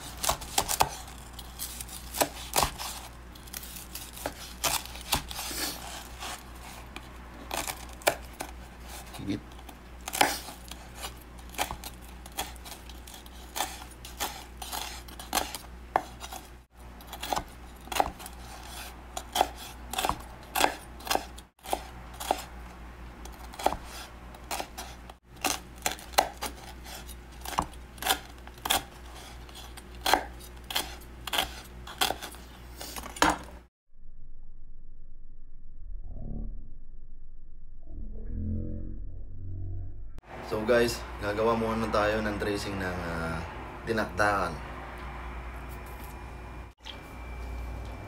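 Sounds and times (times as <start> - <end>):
knife chopping on wooden board: 0.0 - 1.1, 2.0 - 3.1, 4.1 - 6.4, 10.1 - 16.5, 17.1 - 22.5, 23.3 - 32.4
low hum: 33.9 - 41.2, 44.7 - 48.0.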